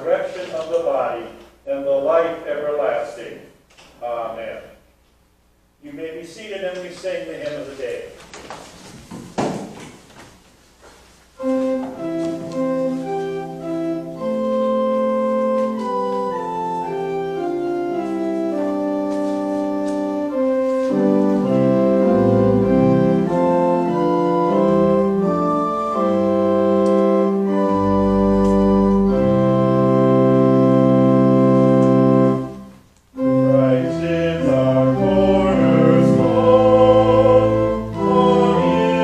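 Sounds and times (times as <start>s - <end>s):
church organ chords: 11.4s - 39.0s
deep organ pedal bass notes: 11.4s - 39.0s.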